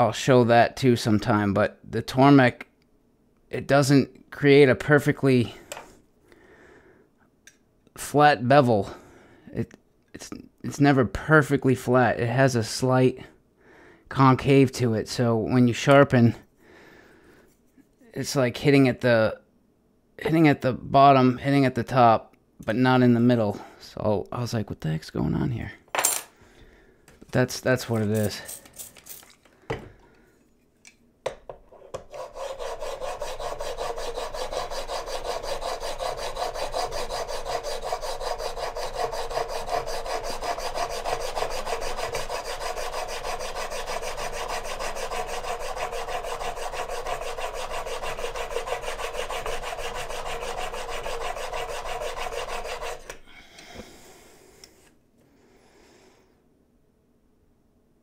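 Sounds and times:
blade scraping on sharpening plate: 31.8s - 53.2s
rag wiping plate: 32.0s - 53.1s.

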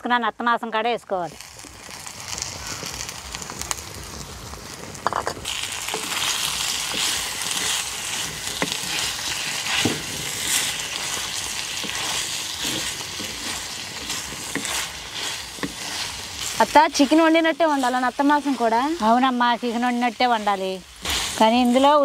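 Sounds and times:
meat sizzling in hot oil: 1.2s - 22.0s
wooden spatula scraping pot: 5.0s - 20.0s.

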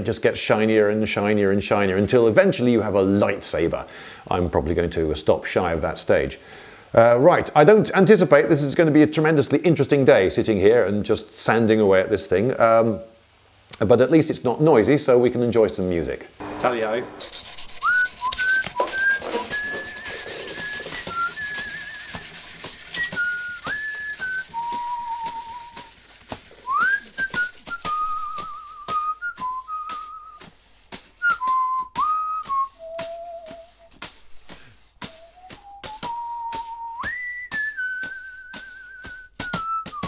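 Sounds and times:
sandpaper rubbing on steel: 17.2s - 31.3s, 32.4s - 36.8s
person whistling a slow tune: 17.8s - 25.9s, 26.6s - 30.5s, 31.2s - 34.0s, 35.0s - 40.0s.

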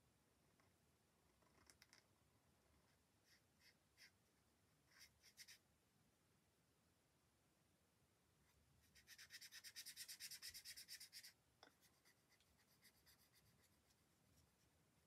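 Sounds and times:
marker rubbing on paper: 4.9s - 5.6s, 8.8s - 14.6s.

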